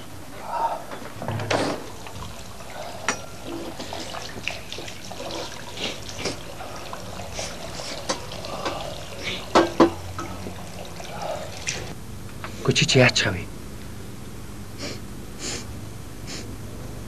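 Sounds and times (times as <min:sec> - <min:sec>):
dishes clinking: 0:01.0 - 0:11.9
liquid pouring: 0:01.7 - 0:12.0.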